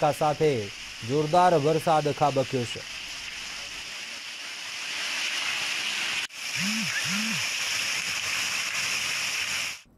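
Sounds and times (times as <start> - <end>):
heavy rain pouring: 2.8 - 9.8.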